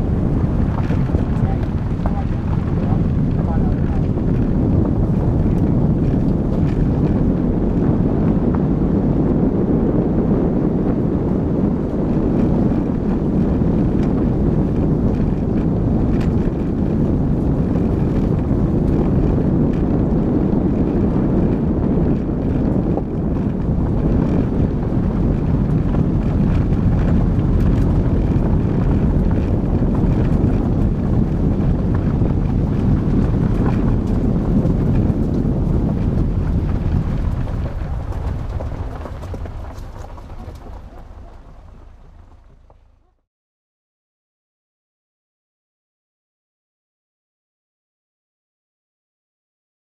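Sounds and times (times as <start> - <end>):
tyres on gravel: 0.0 - 8.8, 22.5 - 43.2
car engine: 0.0 - 43.2
wind on microphone: 0.0 - 43.2.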